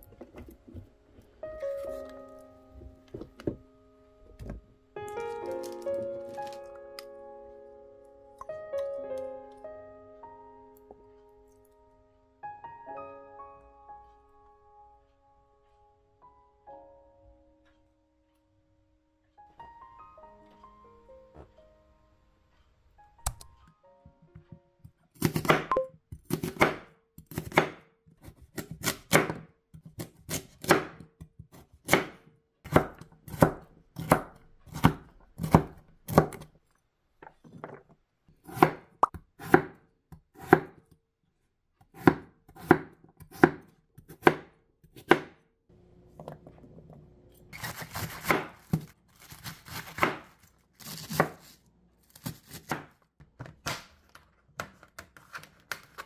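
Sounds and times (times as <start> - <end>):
knife chopping on wooden board: 25.2 - 36.5, 38.4 - 40.8, 41.8 - 45.4, 47.6 - 51.5, 52.1 - 53.0.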